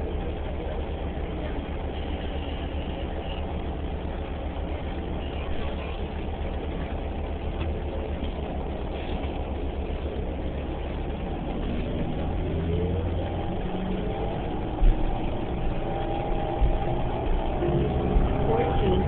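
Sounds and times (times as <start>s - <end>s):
bus engine rumble: 0.0s - 19.0s
rising drive whine: 0.0s - 19.0s.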